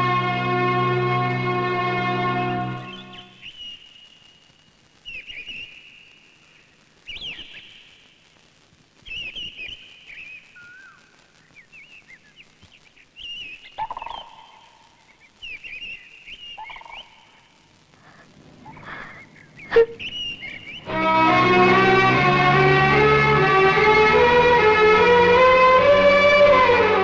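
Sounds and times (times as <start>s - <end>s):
birds chirping in high trills: 1.2s - 4.4s, 9.1s - 17.5s, 18.7s - 21.2s
loud low-pitched sound: 20.8s - 27.0s.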